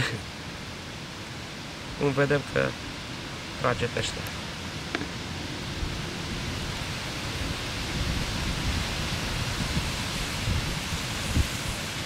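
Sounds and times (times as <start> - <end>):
wind on microphone: 4.9 - 12.0.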